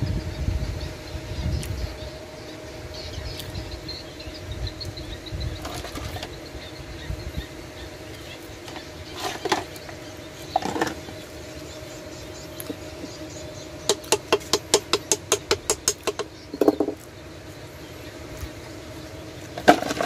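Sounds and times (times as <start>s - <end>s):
hammer tapping on metal: 13.9s - 17.0s.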